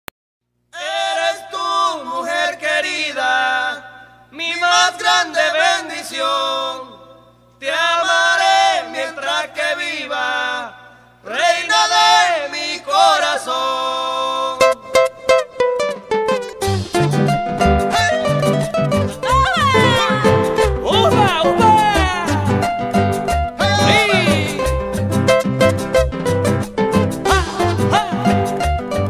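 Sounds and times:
person singing chant-like phrases: 19.2s - 22.7s, 23.6s - 24.8s, 27.3s - 28.5s.

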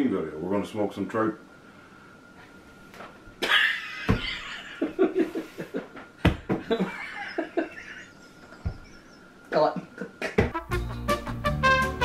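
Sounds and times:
men laughing: 3.4s - 9.2s.

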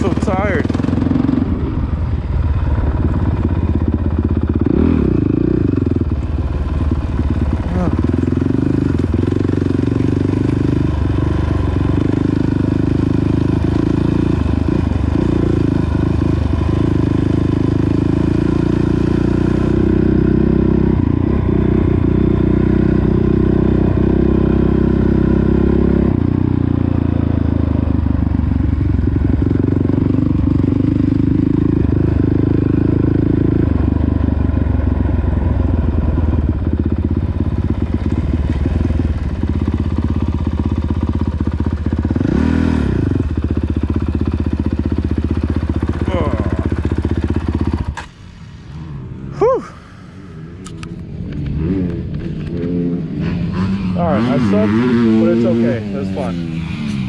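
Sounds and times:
dirt bike engine revving: 0.0s - 6.1s, 6.7s - 26.3s, 36.8s - 48.1s, 48.7s - 57.0s.

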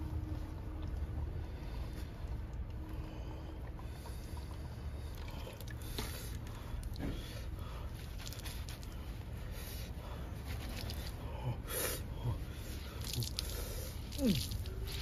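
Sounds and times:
water trickling onto a towel: 7.9s - 9.1s, 12.7s - 15.0s
water drips and splashes: 12.7s - 15.0s.

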